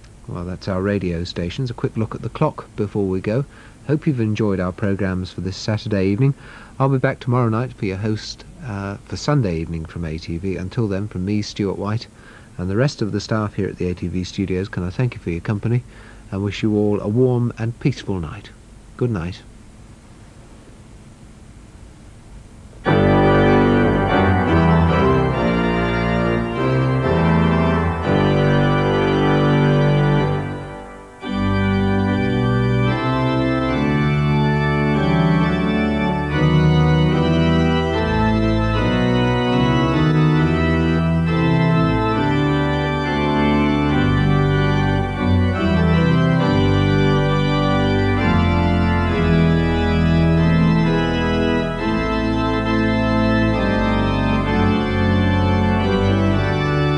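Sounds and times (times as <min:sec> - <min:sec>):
organ playing slow chords: 0:00.0 - 0:19.3, 0:22.6 - 0:56.9.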